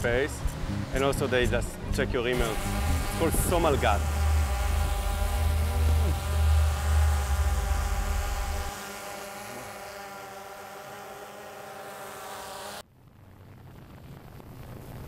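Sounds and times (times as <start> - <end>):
deep low hum: 0.0 - 9.8
drone propellers buzzing: 0.0 - 12.8
wind noise on microphone: 0.1 - 8.7.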